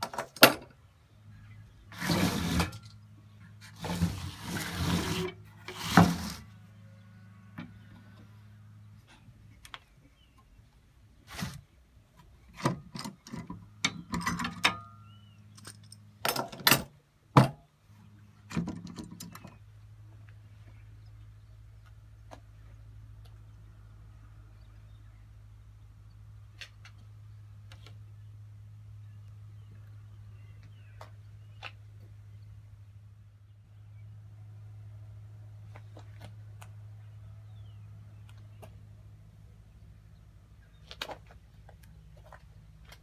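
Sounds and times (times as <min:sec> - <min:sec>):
wood and metal knocks and scrapes: 0:01.9 - 0:02.9, 0:03.6 - 0:06.5.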